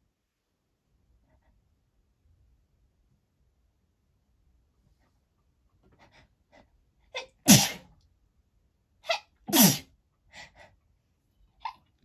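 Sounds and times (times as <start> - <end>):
woman sneezing: 7.2 - 7.9, 9.1 - 9.9.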